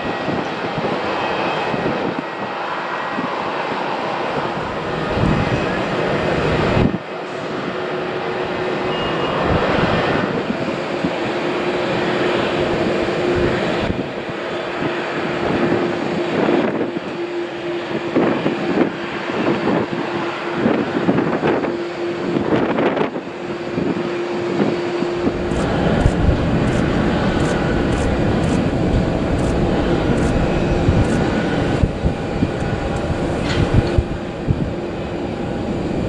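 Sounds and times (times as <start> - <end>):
jet engines rushing: 0.0 - 36.0
steady engine hum: 0.0 - 36.0.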